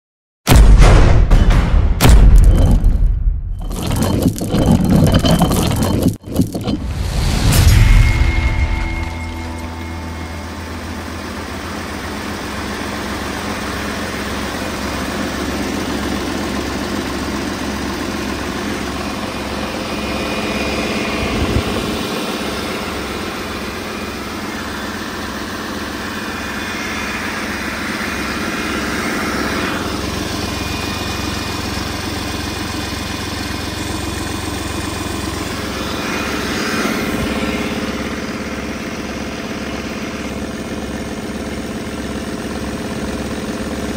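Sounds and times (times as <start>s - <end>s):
diesel engine idling: 9.4s - 43.9s.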